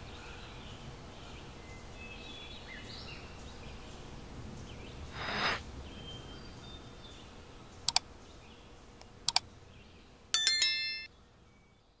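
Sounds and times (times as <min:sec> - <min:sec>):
short swish: 0:05.1 - 0:05.6
bright bell ding: 0:10.4 - 0:11.1.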